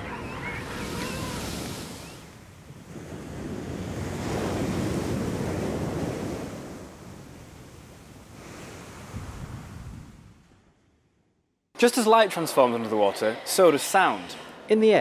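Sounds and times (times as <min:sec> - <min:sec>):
ocean waves crashing on beach: 0:00.0 - 0:10.4.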